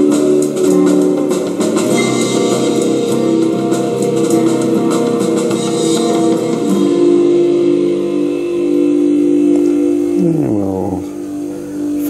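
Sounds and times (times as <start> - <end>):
song with drums: 0.0 - 7.1.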